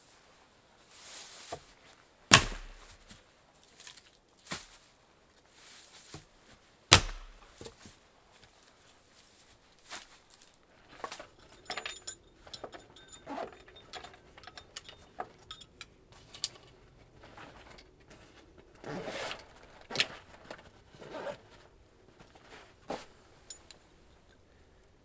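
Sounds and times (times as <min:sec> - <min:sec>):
rustle: 0:00.0 - 0:25.0
metallic clinks and rattles: 0:10.9 - 0:16.8, 0:23.4 - 0:23.8.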